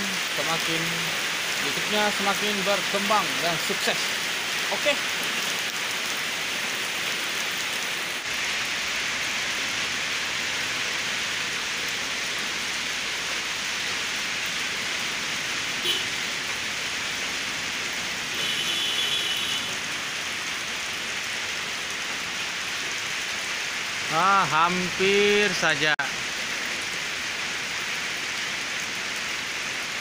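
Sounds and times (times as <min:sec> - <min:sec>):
heavy rain on pavement and roof: 0:00.0 - 0:30.0.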